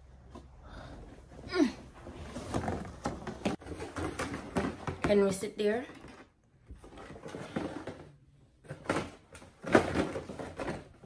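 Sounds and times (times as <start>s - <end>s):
knocks and rustles: 1.9s - 11.0s.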